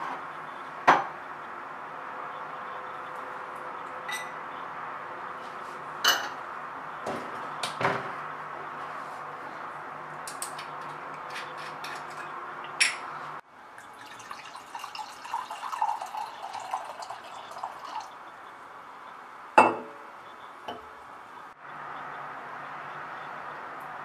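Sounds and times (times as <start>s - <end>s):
glass knocking on stone counter: 19.6s - 19.9s.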